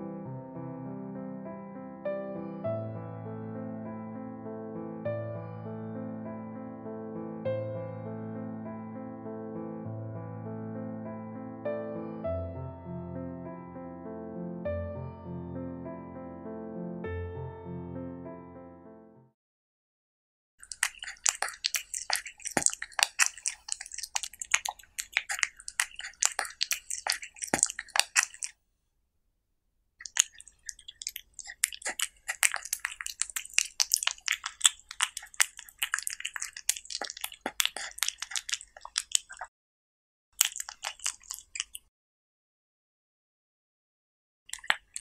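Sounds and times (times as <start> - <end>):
cat chewing crisply: 20.6 - 28.6, 30.0 - 39.5, 40.4 - 41.9, 44.5 - 45.0.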